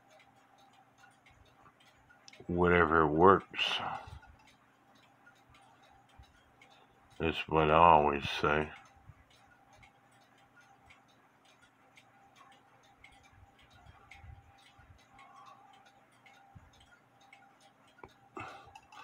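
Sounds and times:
mechanical clock ticking: 0.0s - 19.0s.

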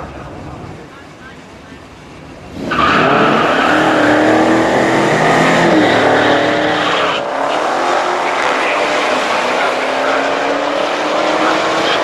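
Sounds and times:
car engines accelerating hard: 0.0s - 12.0s.

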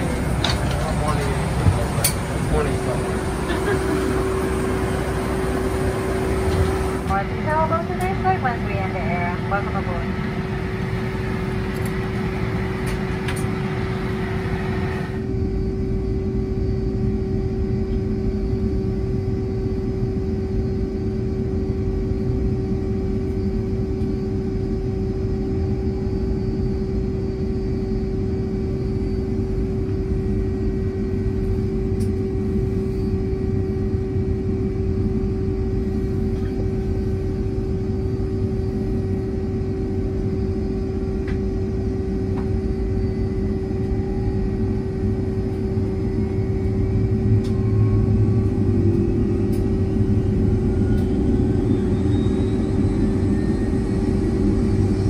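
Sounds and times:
aircraft cabin rumble: 0.0s - 55.0s
jet engines idling whine: 0.0s - 55.0s.

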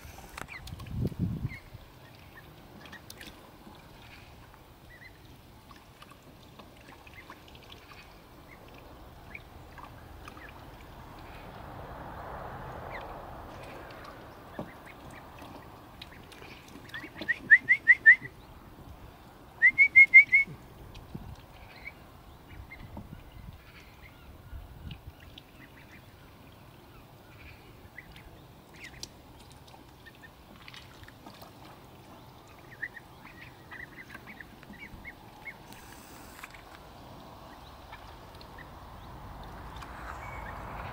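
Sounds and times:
ducklings peeping: 4.0s - 6.2s, 6.8s - 11.4s, 14.5s - 18.5s, 21.3s - 24.2s, 24.9s - 26.2s, 27.3s - 30.4s, 32.0s - 40.7s.

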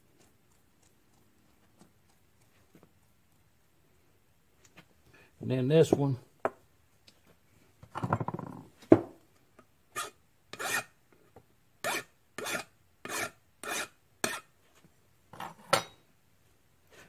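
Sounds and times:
hand file scraping metal: 9.9s - 11.0s, 11.8s - 14.5s.

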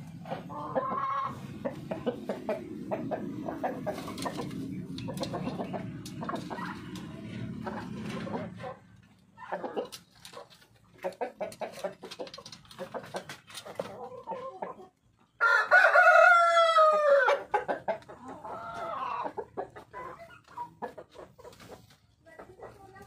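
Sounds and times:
chickens clucking softly: 0.0s - 23.0s
rooster crowing: 15.4s - 17.4s.

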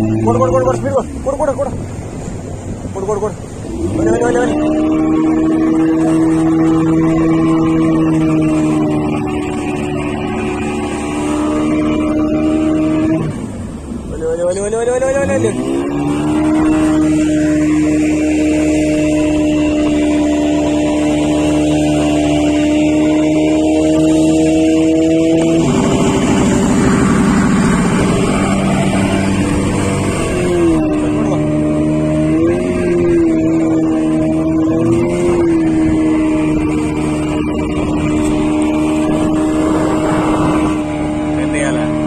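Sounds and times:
boat engine humming: 0.0s - 42.0s
water noise: 0.0s - 42.0s
wind: 0.0s - 42.0s.

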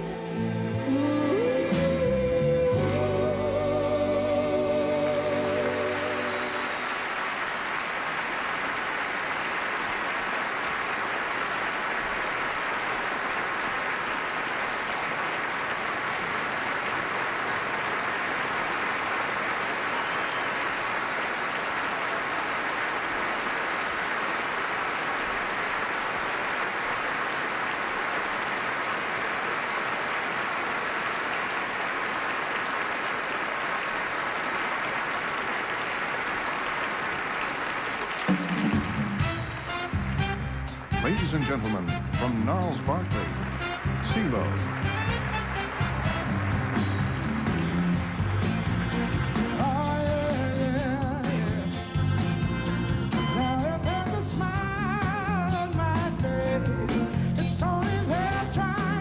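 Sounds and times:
song: 0.0s - 7.3s, 38.4s - 59.0s
audience applauding: 0.0s - 53.8s.

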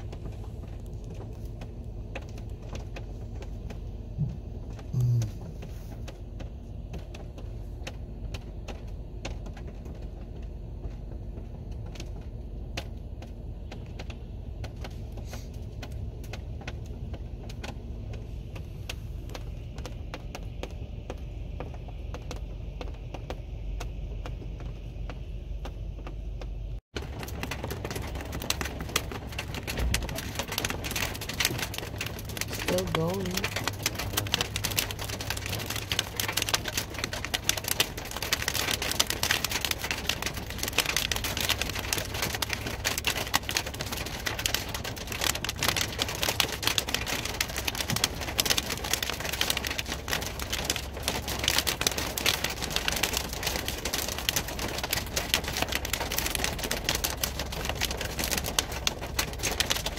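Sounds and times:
low steady hum: 0.0s - 59.9s
loud low tone: 5.0s - 5.5s
hailstones clattering: 26.9s - 59.9s.

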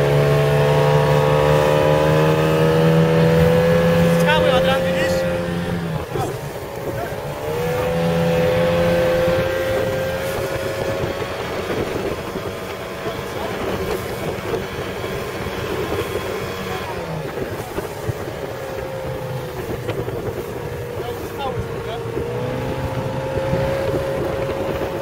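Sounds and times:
speedboat engine running: 0.0s - 25.0s
water rushing along hull: 0.0s - 25.0s.

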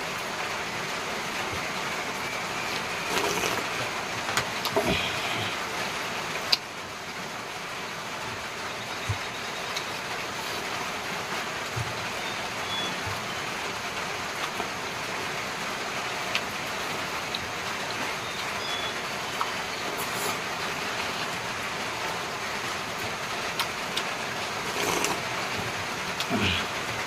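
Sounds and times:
sharp clicks of eating by hand: 16.3s - 16.5s, 23.5s - 25.2s.

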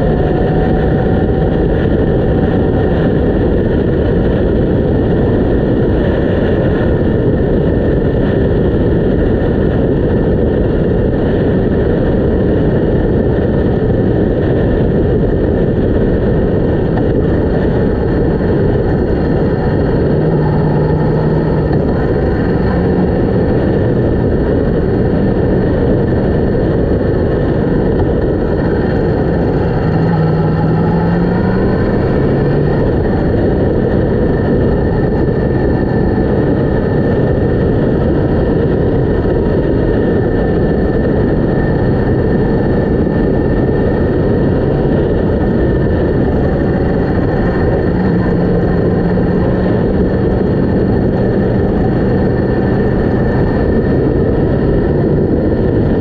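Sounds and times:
motorcycle engine running: 0.0s - 56.0s
wind noise on microphone: 0.0s - 56.0s.

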